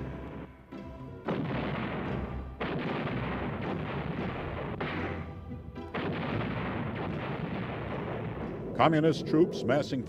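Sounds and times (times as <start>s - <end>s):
music: 0.0s - 10.0s
artillery blasts: 1.2s - 9.0s.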